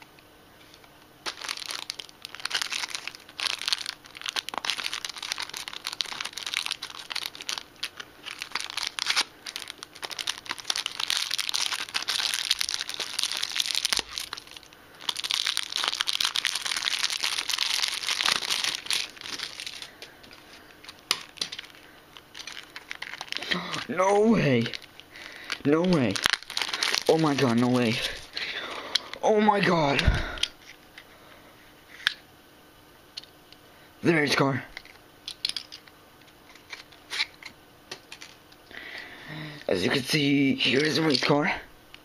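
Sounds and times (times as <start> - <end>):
plastic wrapper crinkling: 1.2 - 29.1.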